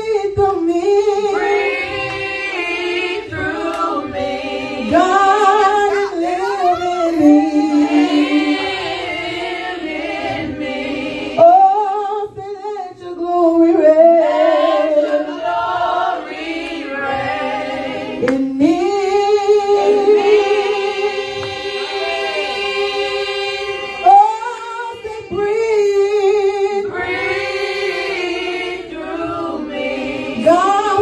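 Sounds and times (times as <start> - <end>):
woman singing gospel: 0.0 - 10.6, 11.4 - 16.2, 18.2 - 22.0, 24.0 - 27.4, 30.4 - 31.0.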